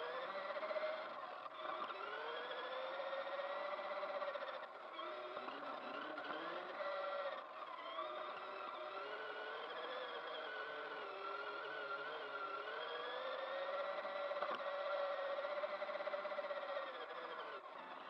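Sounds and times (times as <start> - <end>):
electric motor whining: 0.0 - 18.0
click: 14.3 - 14.7.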